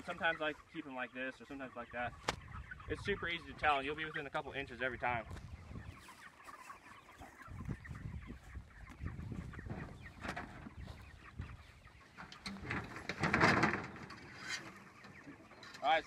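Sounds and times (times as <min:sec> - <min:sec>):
chickens clucking: 0:00.0 - 0:16.0
metal dolly scraping rustle: 0:12.2 - 0:16.0.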